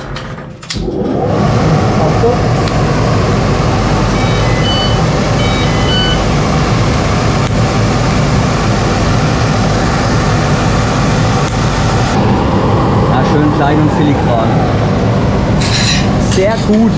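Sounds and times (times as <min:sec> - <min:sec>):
machinery rumbling: 0:00.0 - 0:16.9
high electronic beeps: 0:04.1 - 0:06.3.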